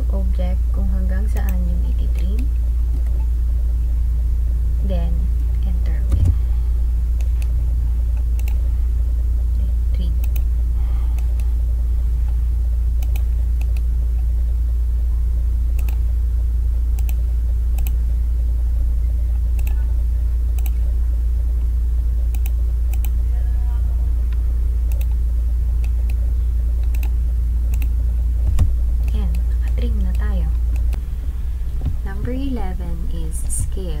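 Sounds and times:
low electrical hum: 0.0s - 34.0s
computer mouse clicks: 1.4s - 1.6s, 8.2s - 8.6s, 10.2s - 10.5s, 13.0s - 13.9s, 15.8s - 16.0s, 17.0s - 18.0s, 19.6s - 19.8s, 20.6s - 20.8s, 22.3s - 23.2s, 24.9s - 25.2s, 26.8s - 27.9s.

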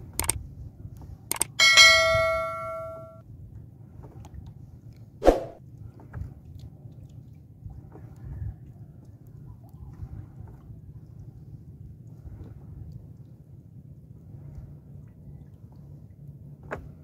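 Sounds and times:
notification bell chime: 1.6s - 3.2s.

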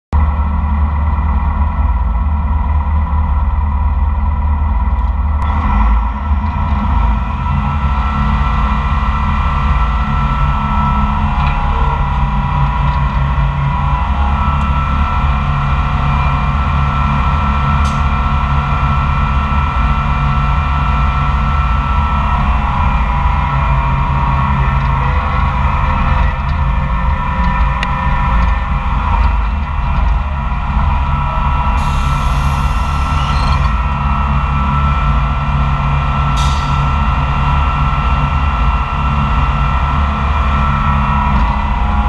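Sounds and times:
dragline engine running: 0.2s - 42.0s
mechanical whine: 0.2s - 42.0s.

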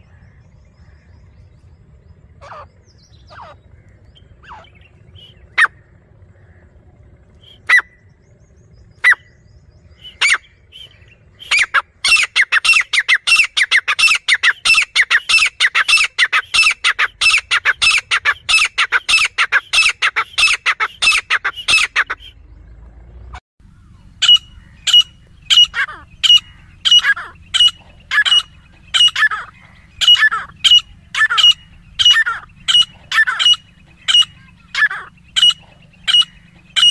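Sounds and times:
francolin calling: 23.6s - 36.9s.

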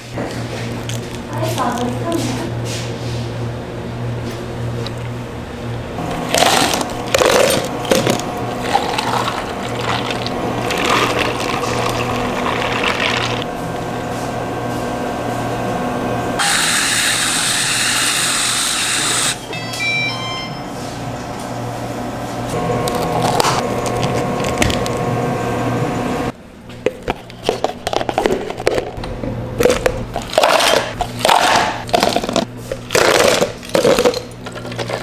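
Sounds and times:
liquid pouring: 8.6s - 13.4s.

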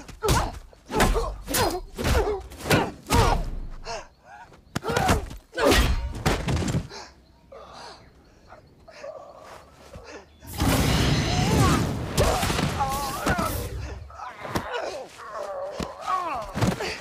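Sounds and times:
grunts of effort: 12.2s - 17.0s.

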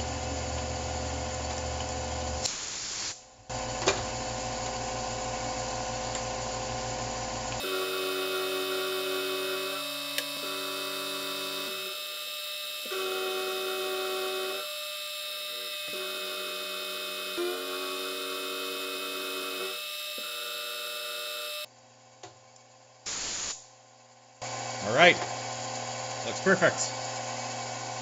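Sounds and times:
milling machine whine: 3.5s - 21.7s.

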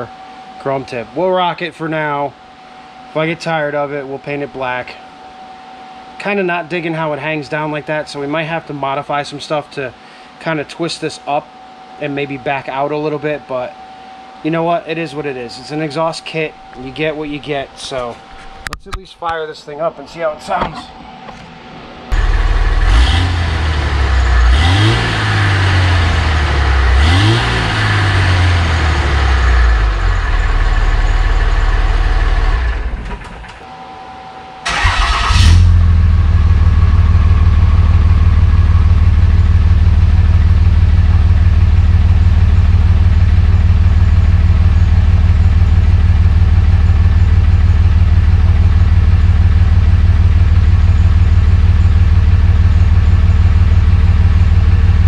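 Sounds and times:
diesel engine revving and idling: 22.1s - 33.3s, 34.7s - 55.0s.

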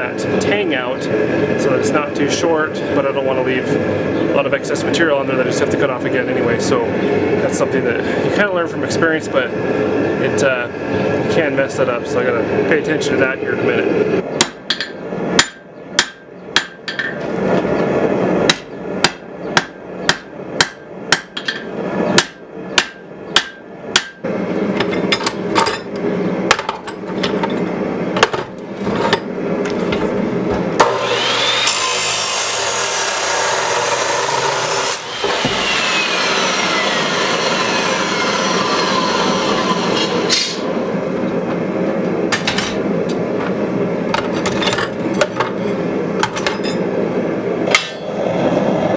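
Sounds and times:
hammer striking hot steel on anvil: 14.4s - 17.2s, 18.5s - 24.2s, 39.9s - 40.7s, 47.7s - 48.2s
chop saw cutting steel: 30.8s - 40.7s.

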